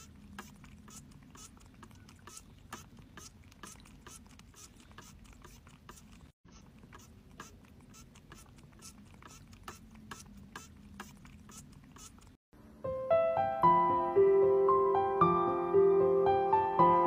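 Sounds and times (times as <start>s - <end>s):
cat licking water: 0.0s - 12.4s.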